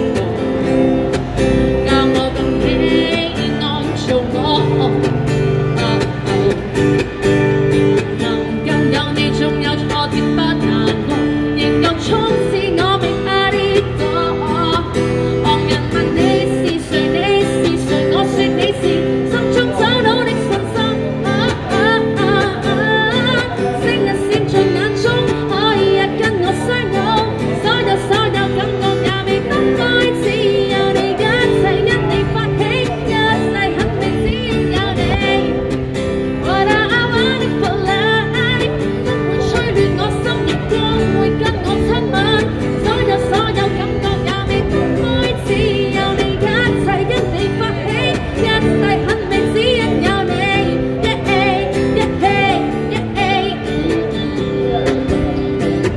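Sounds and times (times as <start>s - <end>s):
acoustic guitar strumming: 0.0s - 55.9s
woman singing: 0.0s - 55.9s.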